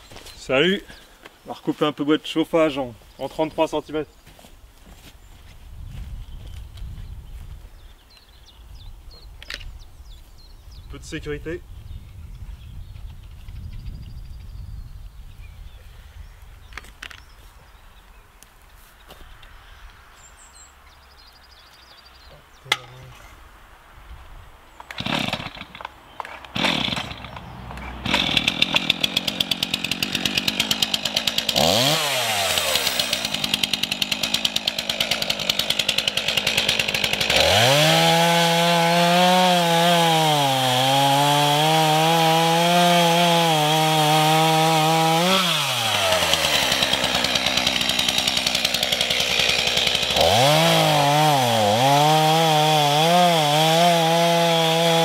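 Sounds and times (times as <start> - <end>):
chainsaw starter pulls: 24.8 - 38.4, 44.9 - 53.0
chainsaw cutting logs: 24.8 - 55.0
chainsaw idling: 25.0 - 55.0.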